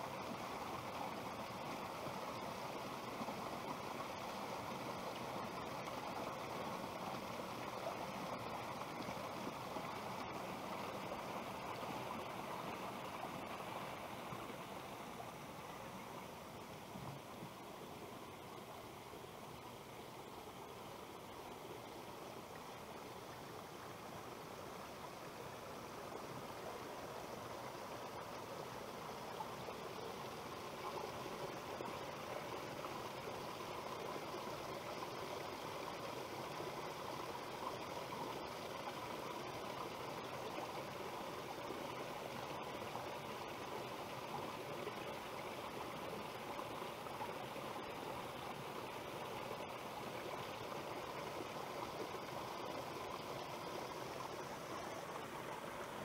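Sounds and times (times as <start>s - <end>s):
stream trickling over stones: 0.0s - 56.0s.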